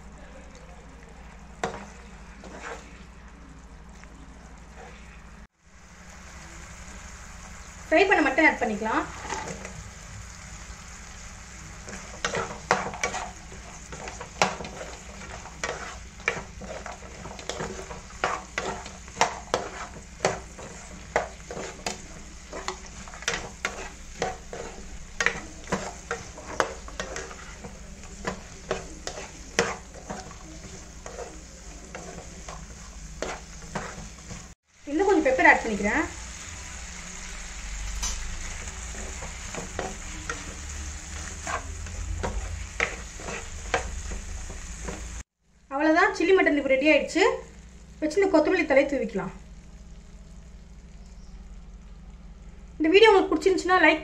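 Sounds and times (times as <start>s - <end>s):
low sizzle: 0.0s - 54.0s
spatula scraping and tapping pan: 1.6s - 3.0s, 9.2s - 9.8s, 11.8s - 34.6s, 38.0s - 45.2s.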